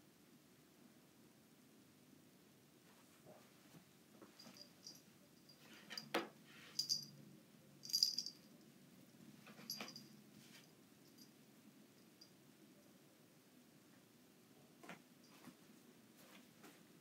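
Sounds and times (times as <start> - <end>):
collar tag jingling: 4.4 - 6.1, 6.8 - 7.2, 7.8 - 8.6, 9.5 - 10.2, 11.0 - 11.4.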